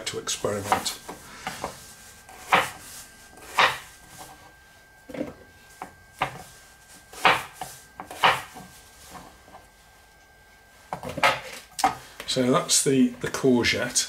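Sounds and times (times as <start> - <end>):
knife chopping on wooden board: 2.3 - 2.8, 3.4 - 3.9, 7.1 - 8.6.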